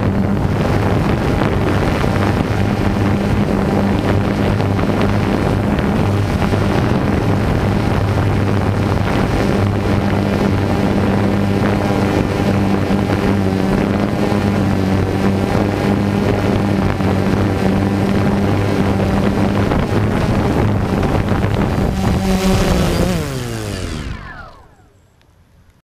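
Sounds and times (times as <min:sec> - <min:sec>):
quadcopter motors humming: 0:00.0 - 0:25.3.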